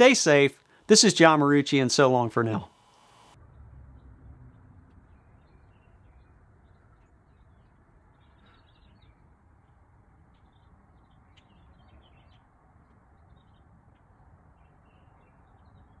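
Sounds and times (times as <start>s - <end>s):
small birds chirping: 5.0s - 16.0s.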